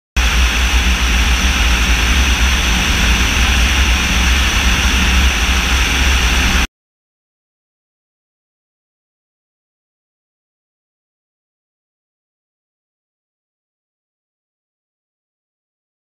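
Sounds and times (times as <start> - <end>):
drone engine drone: 0.1 - 6.7
airflow rushing: 0.2 - 6.7.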